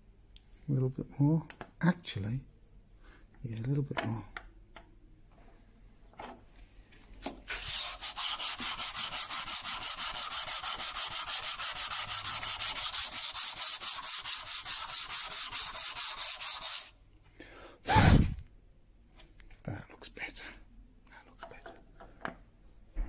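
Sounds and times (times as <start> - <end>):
wood rubbing on sandpaper: 7.5 - 17.0.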